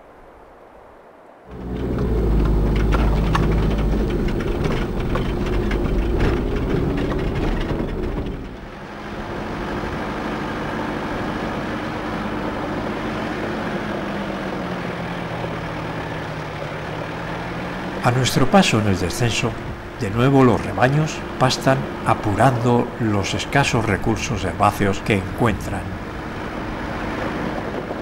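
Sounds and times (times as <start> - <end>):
vehicle knocks and rattles: 1.5 - 11.0, 16.2 - 28.0
off-road vehicle engine running: 1.5 - 28.0.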